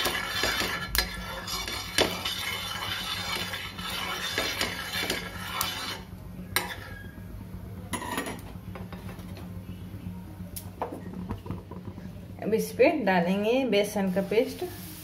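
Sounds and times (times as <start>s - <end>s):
spoon scraping iron griddle: 0.0s - 7.1s.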